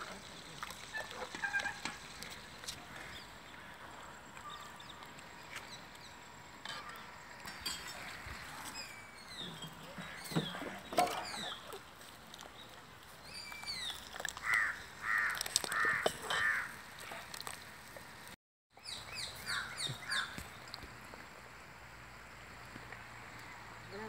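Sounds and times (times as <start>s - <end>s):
small birds chirping: 1.0s - 15.9s, 18.8s - 20.9s
crows cawing: 14.4s - 16.8s.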